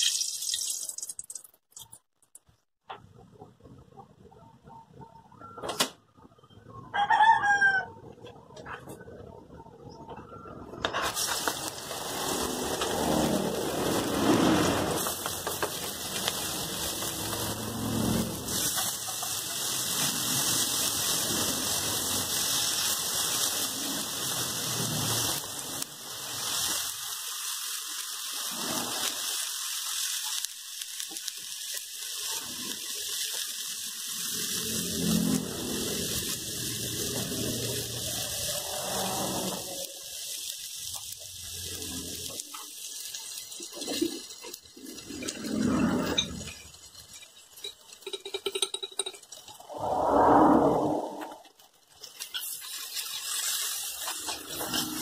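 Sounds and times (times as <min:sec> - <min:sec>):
wooden spatula scraping wok: 0:10.9 - 0:21.4, 0:52.1 - 0:55.0
vegetables sizzling in oil: 0:11.0 - 0:49.6, 0:51.4 - 0:55.0.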